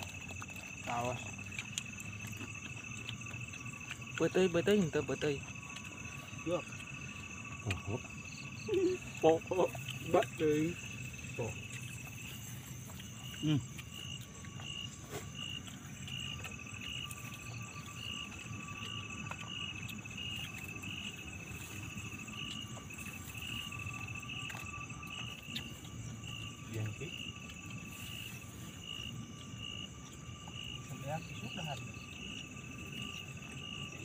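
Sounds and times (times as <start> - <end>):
continuous high insect trill: 0.0 - 34.0
cricket pulsed high chirp: 0.0 - 34.0
steady insect tones: 0.0 - 34.0.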